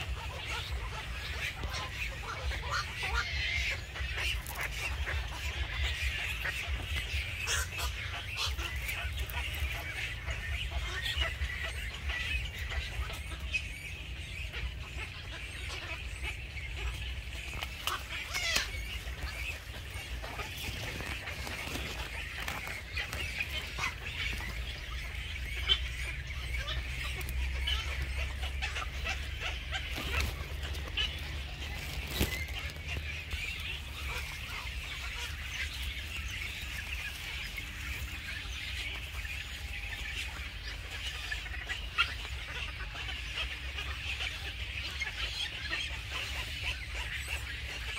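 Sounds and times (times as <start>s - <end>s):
chorus of bird calls: 0.0s - 47.9s.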